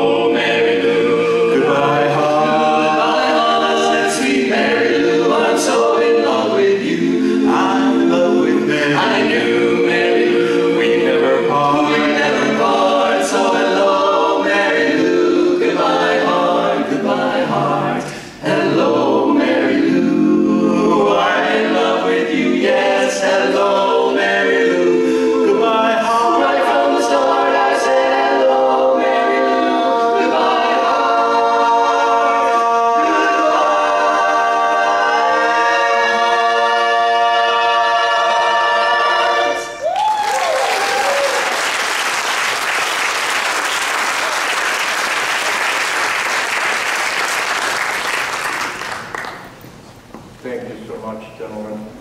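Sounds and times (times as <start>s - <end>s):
male quartet singing a cappella: 0.0s - 39.9s
audience applause: 39.9s - 49.5s.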